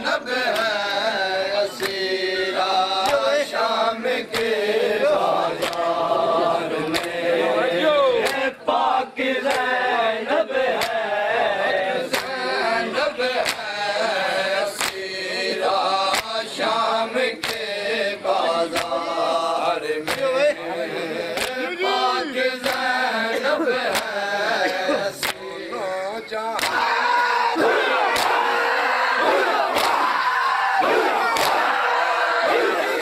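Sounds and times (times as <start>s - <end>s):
men chanting in chorus: 0.0s - 33.0s
hands slapping chests: 0.5s - 1.0s, 1.7s - 2.0s, 3.0s - 3.4s, 4.3s - 4.6s, 5.5s - 6.0s, 6.8s - 7.2s, 8.2s - 8.5s, 9.4s - 9.7s, 10.7s - 11.0s, 12.1s - 12.4s, 13.4s - 13.8s, 14.8s - 15.1s, 16.0s - 16.4s, 17.4s - 17.7s, 18.7s - 19.0s, 20.0s - 20.4s, 21.3s - 21.6s, 22.6s - 22.9s, 23.8s - 25.5s, 26.5s - 28.6s, 29.2s - 30.2s, 30.8s - 31.8s.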